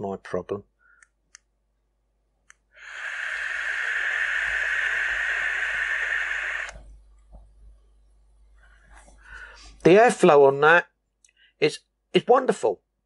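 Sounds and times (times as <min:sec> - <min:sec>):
click: 0:01.0 - 0:01.5, 0:02.4 - 0:02.6
e-cigarette airy hiss: 0:02.8 - 0:06.8.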